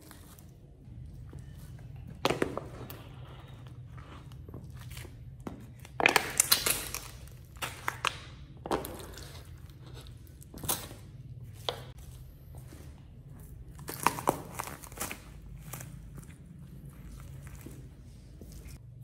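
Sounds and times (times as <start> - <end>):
plastic cups crunching underfoot: 0.0 - 18.8
vegetable crushed underfoot: 13.3 - 17.8.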